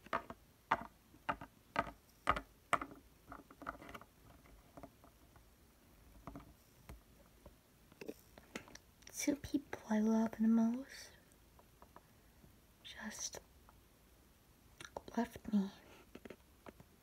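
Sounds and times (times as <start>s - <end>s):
plastic toy tapping on floor: 0.0s - 4.0s.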